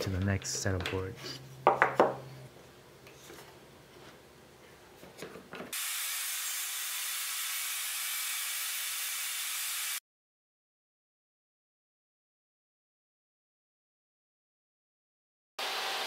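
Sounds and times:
wood-on-wood knocks: 1.6 - 2.2
table saw cutting: 5.7 - 10.0, 15.6 - 16.0.

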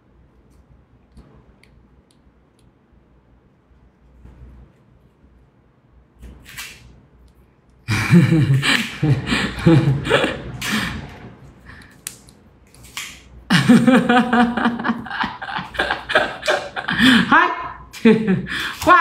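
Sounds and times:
woman laughing hard: 7.9 - 11.1, 13.5 - 19.0
sharp breaths: 10.6 - 12.0.

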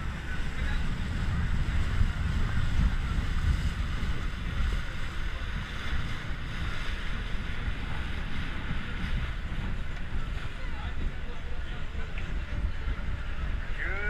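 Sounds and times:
water rushing along boat hull: 0.0 - 14.0
wind buffeting microphone: 0.0 - 14.0.

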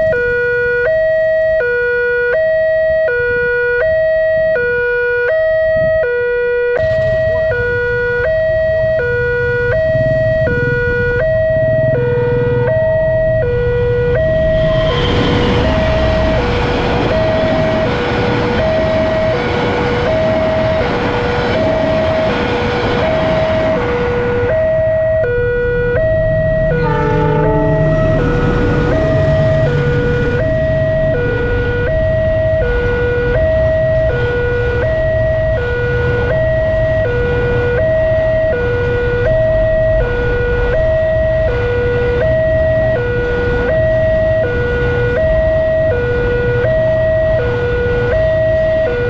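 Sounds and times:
broad rushing noise: 10.3 - 25.0, 26.1 - 34.4
level crossing two-tone chime: 26.7 - 30.7.

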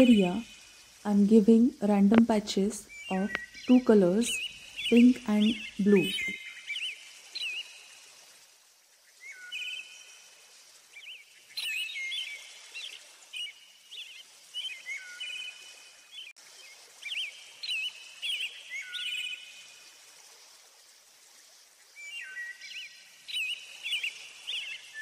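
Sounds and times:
small birds chirping: 0.0 - 7.8, 11.0 - 16.3.

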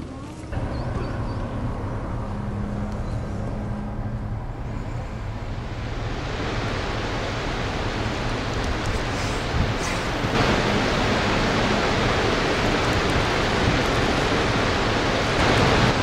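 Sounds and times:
low rumble: 0.5 - 16.0
wind rushing: 3.5 - 16.0.

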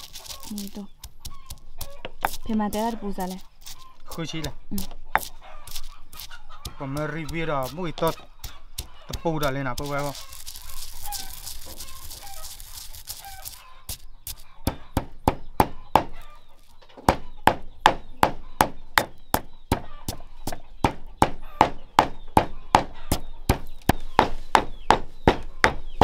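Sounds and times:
stone pestle pounding in mortar: 0.9 - 3.1, 6.6 - 10.3, 17.1 - 26.0.

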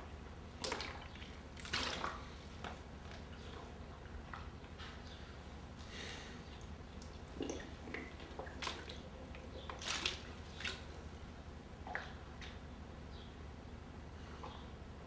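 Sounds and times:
people breathing: 5.8 - 6.5
people sipping water: 5.8 - 11.0.

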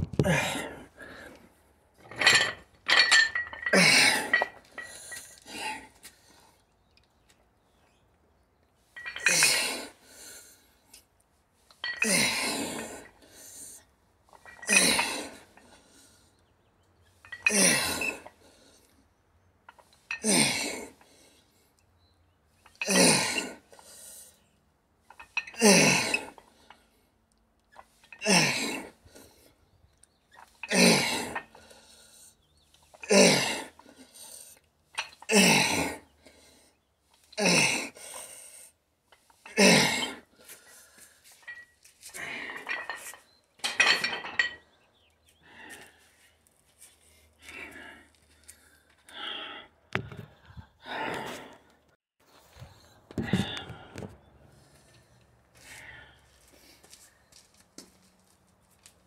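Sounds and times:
man grunting breaths: 0.2 - 1.4, 53.2 - 54.0
dumbbells clinking: 2.0 - 5.4, 8.9 - 9.8, 11.7 - 12.9, 14.3 - 15.6, 17.2 - 18.3, 25.1 - 26.8, 34.9 - 35.8, 41.2 - 44.8.

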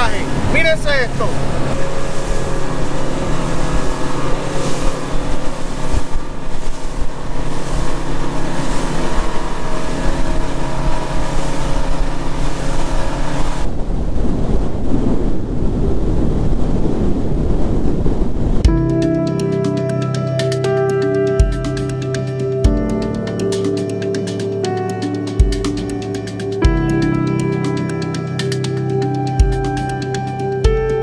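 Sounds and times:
outboard engines running: 0.0 - 14.1, 18.6 - 31.0
rushing water: 0.0 - 18.7
wind on microphone: 0.0 - 19.6.

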